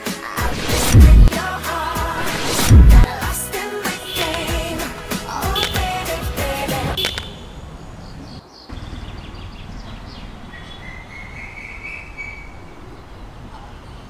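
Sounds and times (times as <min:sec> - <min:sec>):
pop song with singing: 0:00.0 - 0:07.1
street ambience: 0:00.0 - 0:14.0
faint bird chirps: 0:07.0 - 0:14.0.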